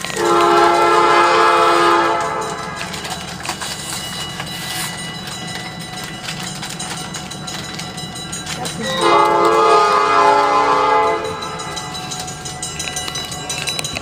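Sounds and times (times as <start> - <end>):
locomotive air horn chord: 0.0 - 3.0, 8.9 - 11.7.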